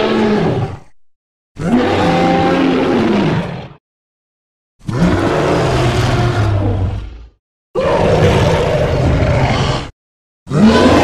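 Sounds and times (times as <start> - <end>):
deep creature roars: 0.0 - 1.0, 1.6 - 3.8, 4.8 - 9.9, 10.5 - 11.0.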